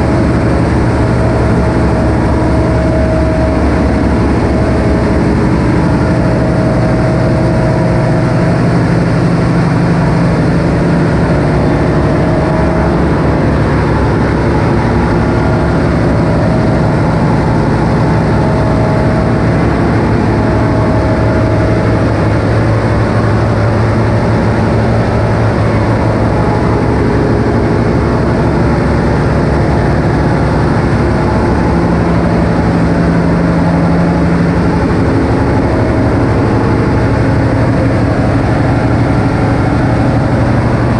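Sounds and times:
generator engine droning: 0:00.0 - 0:40.9.

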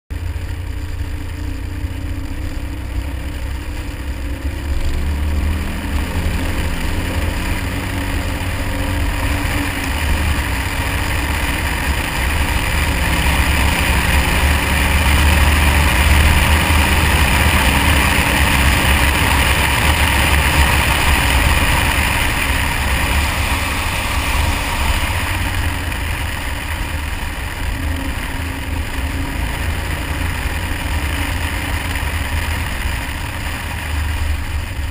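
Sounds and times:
car engine running: 0:00.1 - 0:34.9
wind rumble on microphone: 0:00.1 - 0:34.9
hiss: 0:20.5 - 0:27.0.

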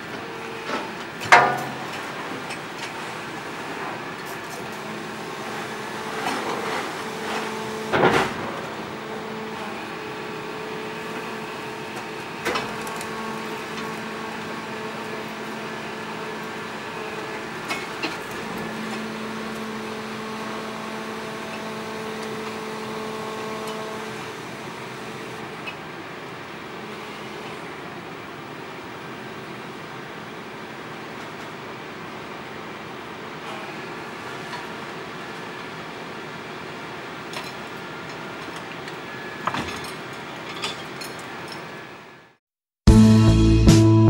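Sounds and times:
garbage truck engine and hydraulics hum: 0:00.0 - 0:42.4
loud metal clank: 0:01.2 - 0:02.0.

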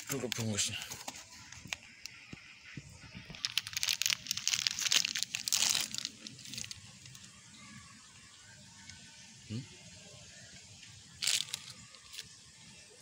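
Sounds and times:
plastic packaging crinkling: 0:03.2 - 0:07.3, 0:11.1 - 0:12.4.

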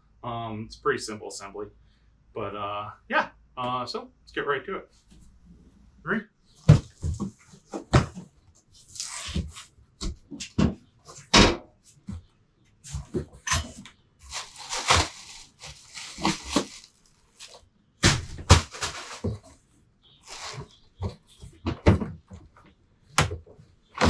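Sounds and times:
cardboard flaps knocking and scraping: 0:06.6 - 0:11.5, 0:14.3 - 0:19.6, 0:20.3 - 0:22.5
rustling contents in box: 0:14.2 - 0:19.6, 0:20.2 - 0:21.2.

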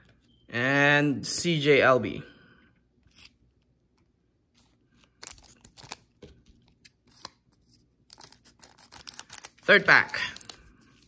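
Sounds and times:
trading cards being handled: 0:03.0 - 0:11.0.

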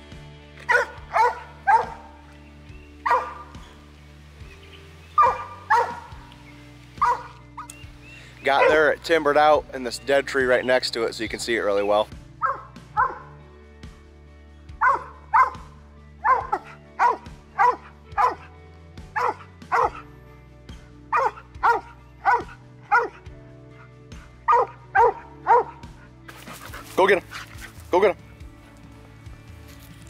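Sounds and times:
dog barking: 0:00.7 - 0:02.2, 0:03.0 - 0:03.6, 0:05.2 - 0:06.2, 0:07.0 - 0:07.4, 0:08.5 - 0:08.9, 0:12.4 - 0:13.3, 0:14.8 - 0:18.5, 0:19.2 - 0:20.1, 0:21.1 - 0:23.2, 0:24.4 - 0:26.6.

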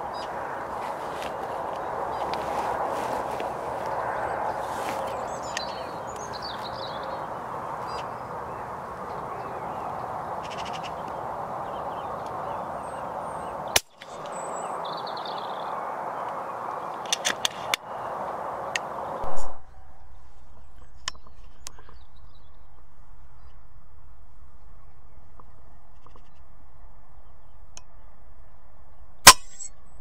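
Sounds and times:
birds chattering calls: 0:00.0 - 0:23.6
steady outdoor hiss: 0:00.0 - 0:30.0
loud thump: 0:19.2 - 0:20.0.

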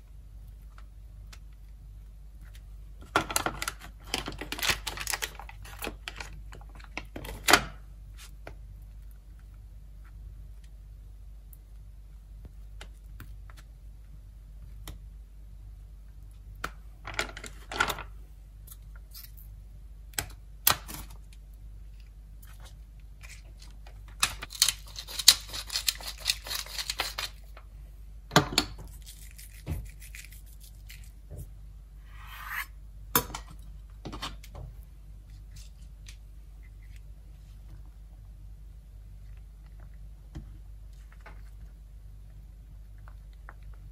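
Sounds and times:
pepper mill grinding: 0:24.4 - 0:27.4, 0:28.9 - 0:31.2.

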